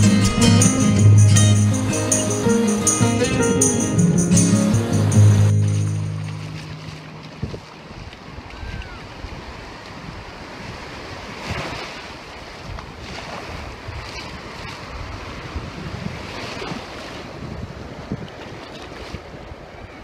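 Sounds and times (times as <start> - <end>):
surf washing up shore: 0.0 - 20.0
wind buffeting microphone: 7.2 - 11.8, 12.6 - 19.8.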